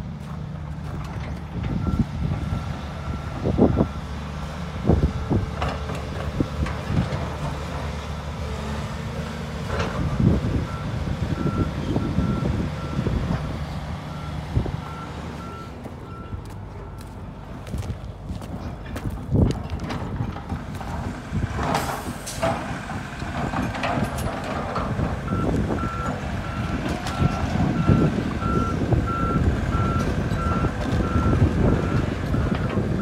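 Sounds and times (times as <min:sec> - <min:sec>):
excavator diesel engines running: 0:00.0 - 0:33.0
reversing alarm beeping: 0:01.8 - 0:04.2, 0:10.7 - 0:13.2, 0:14.1 - 0:17.2, 0:25.3 - 0:33.0.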